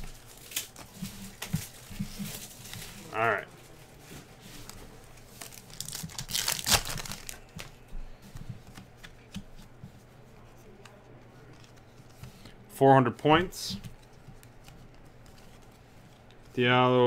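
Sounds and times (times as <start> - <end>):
foil wrapper tearing: 5.3 - 7.5.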